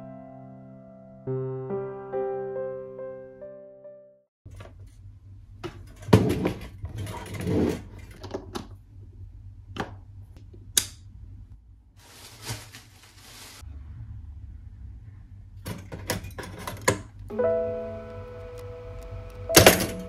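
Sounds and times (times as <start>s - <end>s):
rustling: 12.0s - 13.7s.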